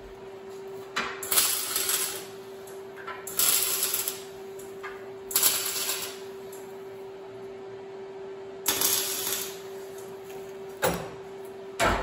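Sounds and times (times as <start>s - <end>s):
steady background hum: 0.0s - 12.0s
welder crackling: 1.2s - 6.8s, 8.6s - 10.6s.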